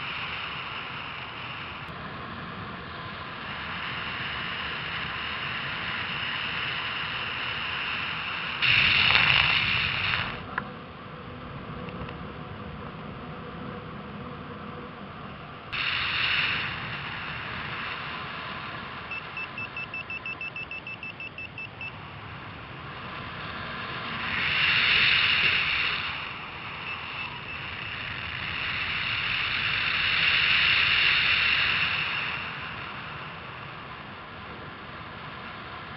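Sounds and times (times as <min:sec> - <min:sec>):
wind rushing over microphone: 0:00.0 - 0:35.9
variometer beeping rapidly: 0:19.1 - 0:22.0.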